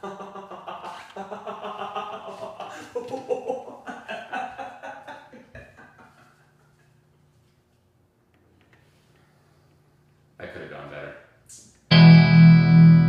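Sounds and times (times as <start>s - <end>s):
man laughing heartily: 0.0s - 7.0s.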